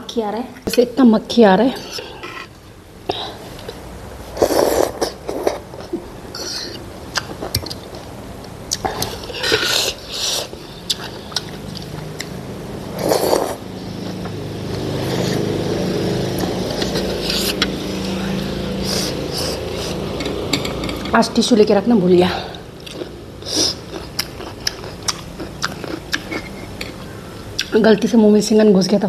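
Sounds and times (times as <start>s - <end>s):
steady low hum: 0.0s - 29.0s
slurping soup: 3.6s - 6.8s, 12.9s - 18.0s
cutlery clicking on ceramic bowl: 20.1s - 21.2s.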